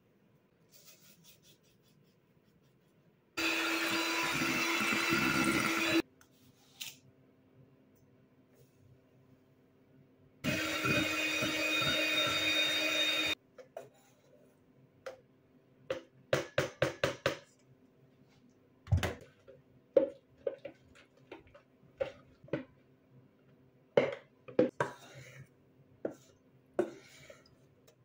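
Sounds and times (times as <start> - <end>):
blender motor running: 3.4 - 6.0, 10.4 - 13.4.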